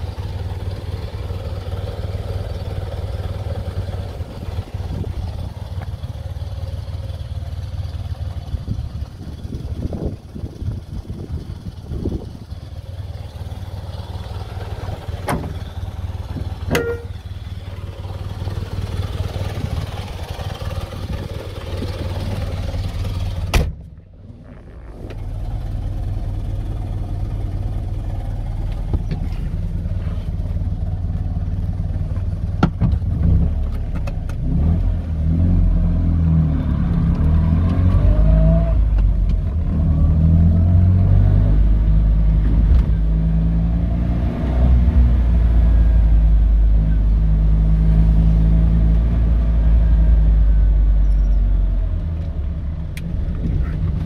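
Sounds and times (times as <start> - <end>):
engine revving: 33.0 - 51.1.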